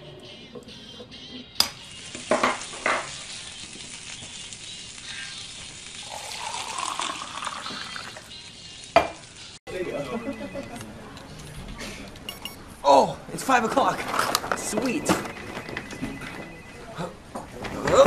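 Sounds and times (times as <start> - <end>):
liquid poured into a mug: 6.0 - 8.4.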